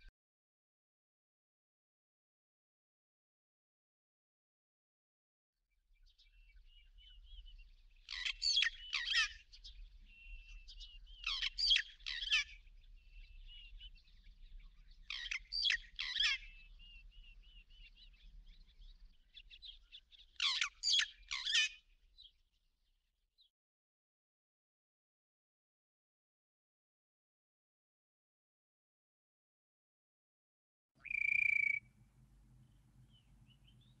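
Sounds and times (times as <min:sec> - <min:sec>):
soft bird twittering: 0:06.1 - 0:22.4, 0:31.0 - 0:34.0
bird calling sweeping notes: 0:31.0 - 0:31.9.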